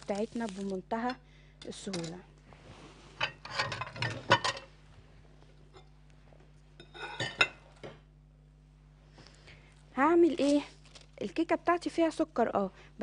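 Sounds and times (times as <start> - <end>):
dishes and cutlery clinking: 3.2 - 4.7, 6.8 - 8.0.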